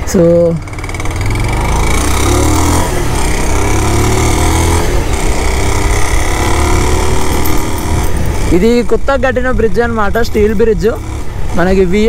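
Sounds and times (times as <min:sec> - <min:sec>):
motorcycle engine: 0:00.0 - 0:12.0.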